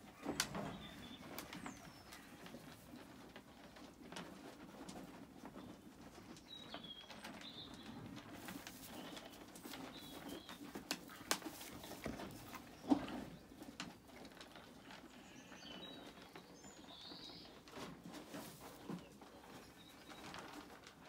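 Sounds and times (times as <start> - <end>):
small birds chirping: 0.1 - 3.1, 5.5 - 17.8.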